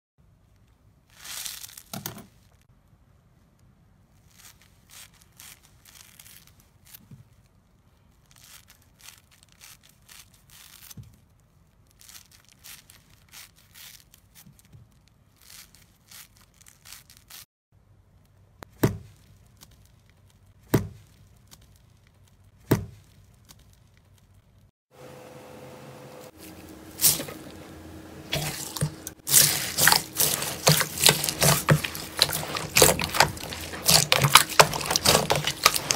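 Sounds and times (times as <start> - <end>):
scissors cutting foam sponge: 26.4 - 27.6, 28.3 - 35.9.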